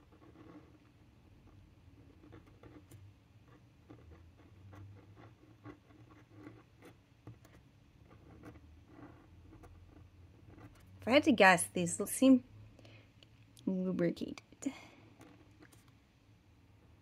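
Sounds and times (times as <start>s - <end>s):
pen nib scratching on card: 0.0s - 10.9s.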